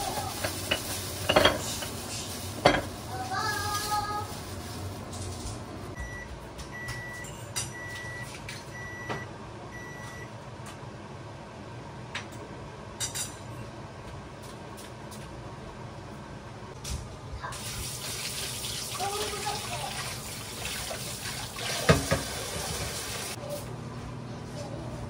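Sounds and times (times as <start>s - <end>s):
kitchen clicks and knocks: 0.3s - 2.0s, 2.6s - 3.0s, 21.8s - 23.0s
appliance high beeps: 6.0s - 10.4s.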